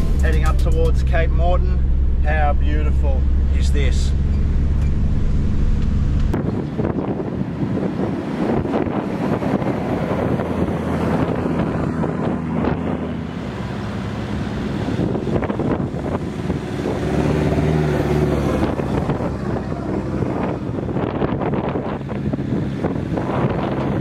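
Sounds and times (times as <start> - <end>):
vehicle engines droning: 0.0 - 24.0
wind noise on microphone: 2.8 - 24.0.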